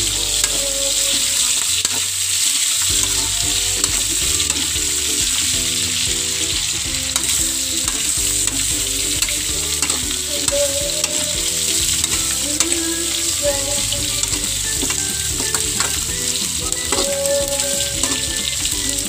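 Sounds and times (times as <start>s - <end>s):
meat and onions sizzling in oil: 0.0s - 19.0s
spatula scraping a wok: 0.0s - 19.0s.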